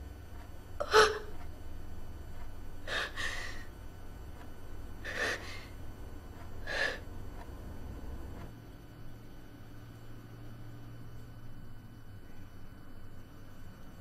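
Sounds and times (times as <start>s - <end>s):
low steady hum: 0.0s - 14.0s
person gasping breaths: 2.8s - 3.7s, 5.0s - 5.7s, 6.6s - 7.1s.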